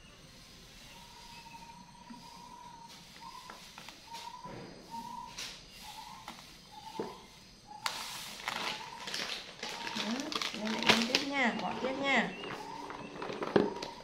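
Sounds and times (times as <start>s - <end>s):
plastic bag crinkling: 7.9s - 14.0s.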